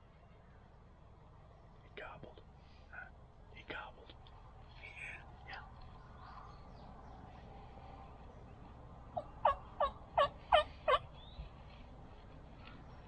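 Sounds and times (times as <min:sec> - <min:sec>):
wild turkey yelping: 0:09.1 - 0:11.4.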